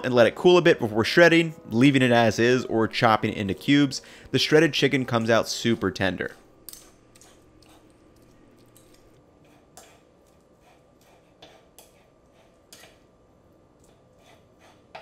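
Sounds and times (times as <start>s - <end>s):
forks scraping on meat: 6.2s - 8.0s, 8.8s - 13.0s, 14.1s - 15.0s.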